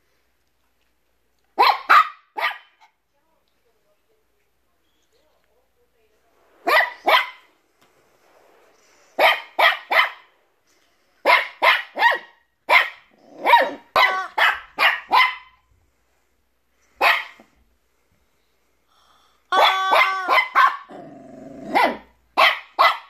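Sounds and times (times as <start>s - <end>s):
puppy yapping barks: 1.6s - 3.0s, 6.7s - 7.5s, 9.2s - 10.3s, 11.3s - 15.6s, 17.0s - 17.5s, 19.5s - 21.0s, 21.6s - 23.0s.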